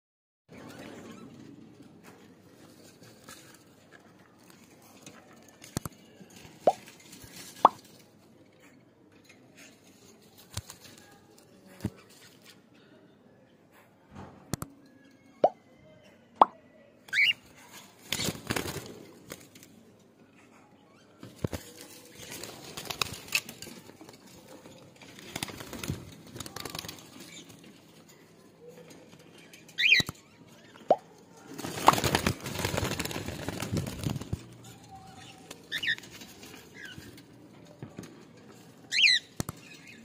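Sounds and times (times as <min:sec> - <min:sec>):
wings flapping and rustling: 0:04.4 - 0:08.1, 0:09.7 - 0:12.6, 0:17.1 - 0:19.8, 0:21.2 - 0:28.2, 0:31.4 - 0:37.4.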